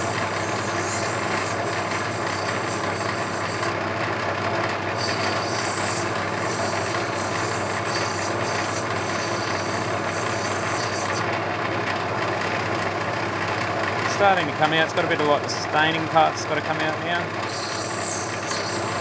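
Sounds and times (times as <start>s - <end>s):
stone grinding hiss: 0.0s - 3.7s, 5.0s - 11.2s, 17.5s - 19.0s
grinder motor running: 0.0s - 19.0s.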